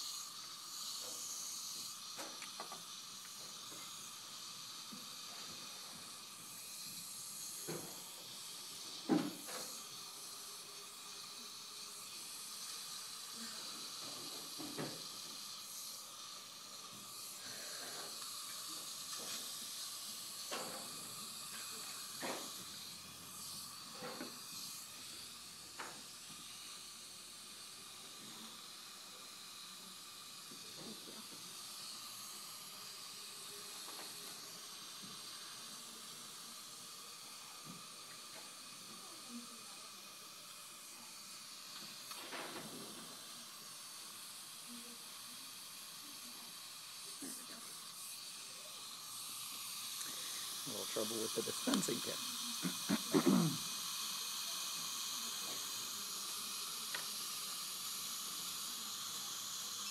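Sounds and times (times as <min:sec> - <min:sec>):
suction line hissing: 0:00.0 - 0:59.9.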